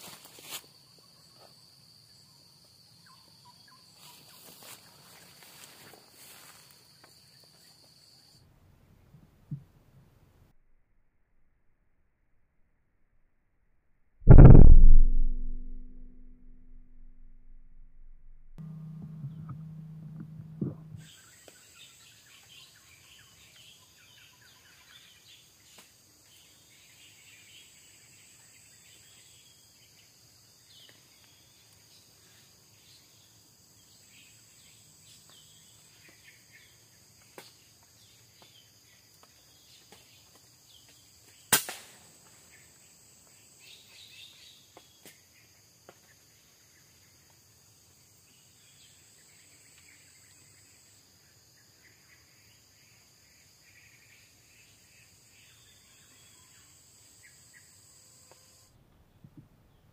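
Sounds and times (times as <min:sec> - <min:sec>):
forest insects buzzing: 0:03.9 - 0:08.3
air rifle shot: 0:14.3 - 0:17.6.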